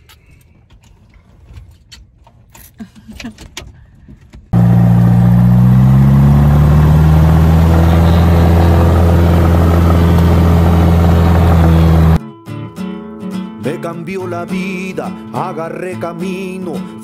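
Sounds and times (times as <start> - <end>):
light aircraft engine and propeller: 4.6 - 12.2.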